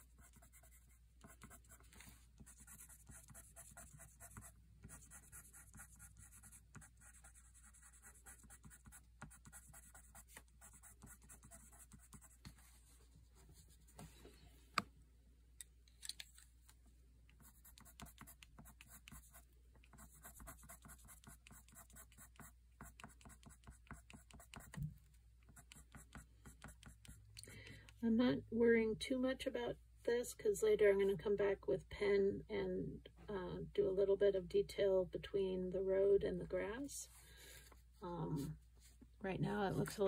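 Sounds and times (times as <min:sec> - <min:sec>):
pencil scratching on paper: 0:00.0 - 0:12.8, 0:17.4 - 0:24.8, 0:25.5 - 0:27.2.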